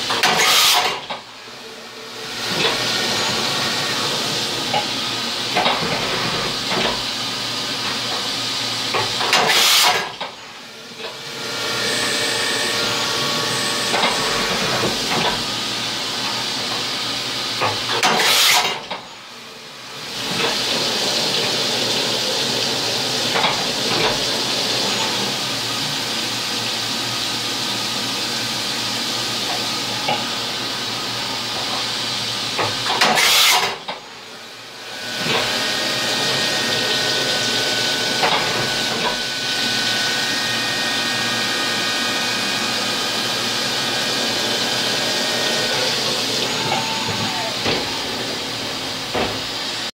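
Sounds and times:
milling machine cutting: 0:08.9 - 0:18.8, 0:34.5 - 0:49.9
coolant hissing: 0:19.3 - 0:49.9.

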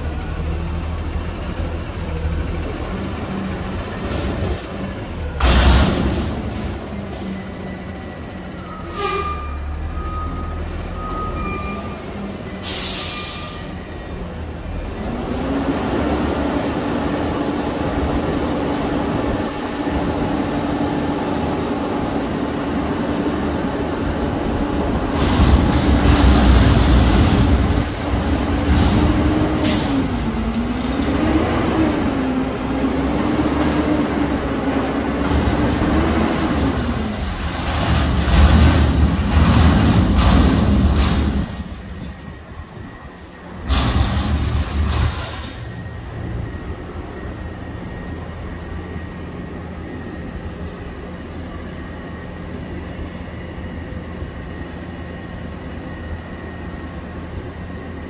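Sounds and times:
garbage truck engine whining: 0:00.0 - 0:58.0
air brake hiss: 0:12.6 - 0:13.8, 0:29.6 - 0:30.0.

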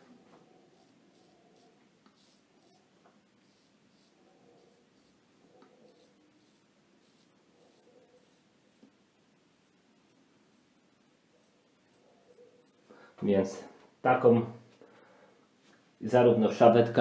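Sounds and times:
razor scraping stubble: 0:00.7 - 0:09.0.

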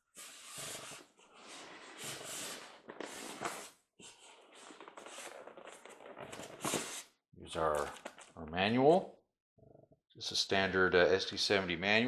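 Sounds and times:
cardboard and paper rustling: 0:02.8 - 0:07.0.

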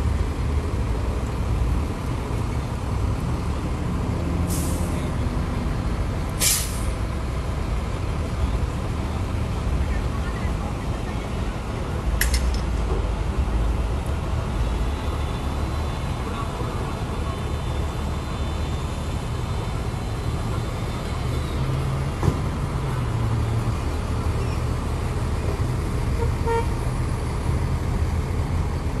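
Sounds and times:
traffic and idling engines rumble: 0:00.0 - 0:29.0
sharp click: 0:12.2 - 0:12.7.

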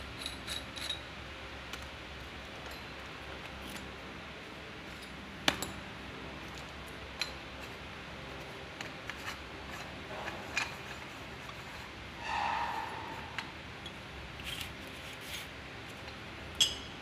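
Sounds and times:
metal grating scrape: 0:09.1 - 0:15.5.

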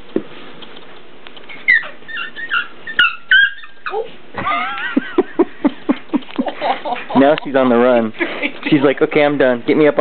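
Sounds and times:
puppy whining: 0:01.4 - 0:04.3
puppy yelping: 0:01.5 - 0:04.2.

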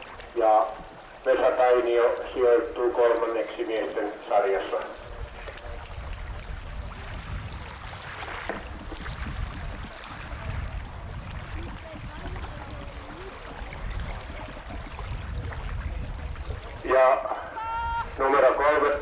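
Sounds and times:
wind on microphone: 0:04.8 - 0:19.0.

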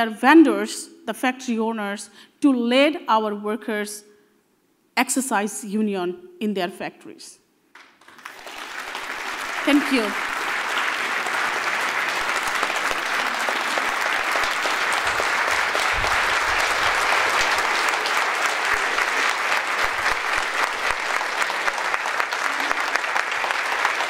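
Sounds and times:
audience applauding: 0:07.8 - 0:24.0.

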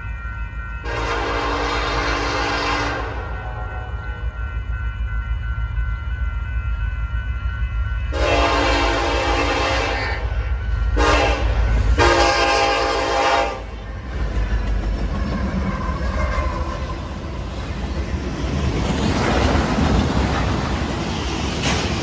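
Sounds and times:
diesel locomotive rumble: 0:00.0 - 0:22.0
train air horn blasts: 0:00.8 - 0:03.7, 0:08.1 - 0:10.3, 0:10.9 - 0:13.8.

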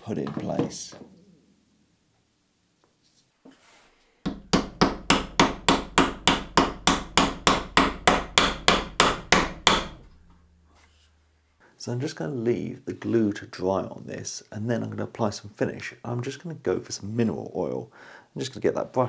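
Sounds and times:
mallet tapping wood: 0:04.2 - 0:10.1.

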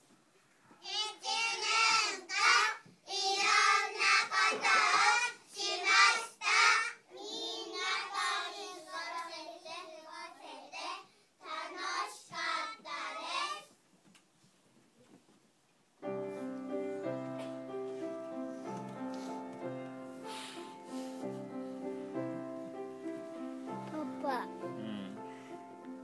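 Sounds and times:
children chanting in unison: 0:00.8 - 0:13.7.

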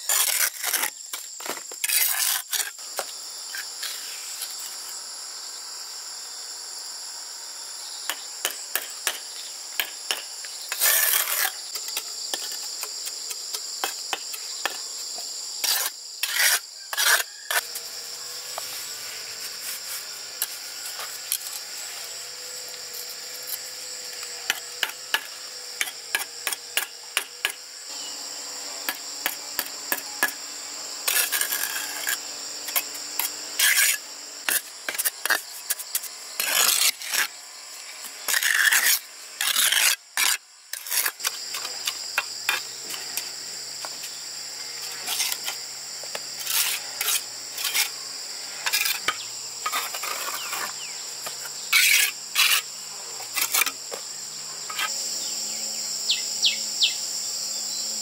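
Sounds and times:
hand tool rasping and scraping: 0:00.0 - 0:02.8, 0:09.8 - 0:14.8, 0:15.6 - 0:27.6, 0:31.0 - 0:53.8
insects shrilling: 0:06.8 - 0:58.0.

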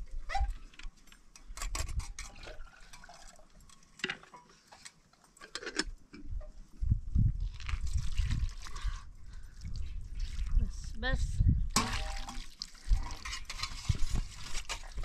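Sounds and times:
water moving in basin: 0:02.0 - 0:05.7, 0:07.4 - 0:10.9, 0:11.7 - 0:15.0.

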